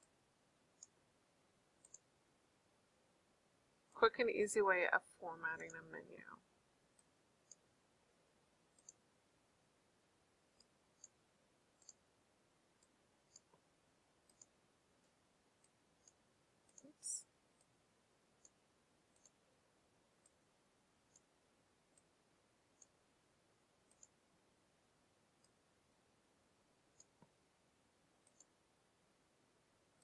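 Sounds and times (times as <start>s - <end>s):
computer mouse clicks: 0.8s - 1.0s, 1.8s - 2.1s, 6.9s - 7.7s, 8.7s - 9.0s, 10.6s - 11.2s, 11.8s - 12.0s, 12.8s - 13.6s, 14.2s - 16.9s, 18.4s - 19.4s, 20.2s - 20.4s, 21.1s - 21.3s, 21.9s - 22.1s, 22.7s - 23.0s, 23.8s - 24.2s, 25.4s - 25.6s, 26.9s - 27.4s, 28.2s - 28.6s.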